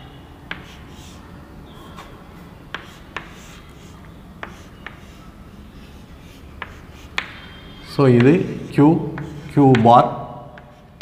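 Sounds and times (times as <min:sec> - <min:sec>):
chalk tapping on board: 0:00.5 - 0:01.2, 0:02.7 - 0:05.2, 0:06.2 - 0:11.0
chalk scraping on blackboard: 0:00.5 - 0:01.3, 0:02.7 - 0:09.9.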